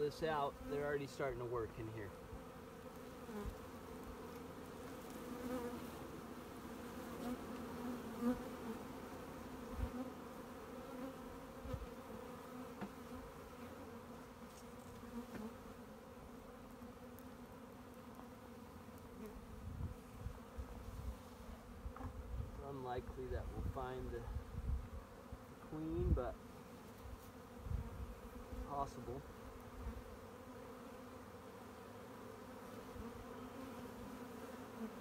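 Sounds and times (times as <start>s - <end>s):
bees buzzing: 0.0s - 23.2s, 24.0s - 35.0s.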